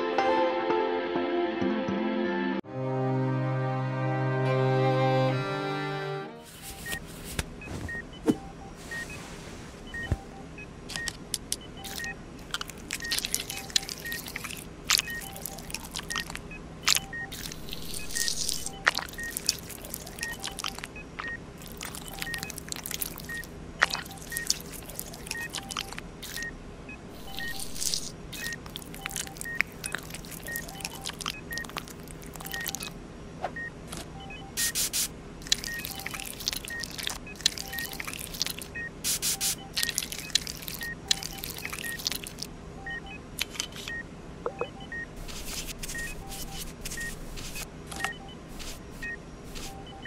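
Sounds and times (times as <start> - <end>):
heart monitor beeping: 6.5 - 33.0, 33.6 - 43.2, 43.8 - 50.0
wet squelches: 6.7 - 26.5, 27.2 - 33.0, 34.5 - 44.0, 45.2 - 50.0.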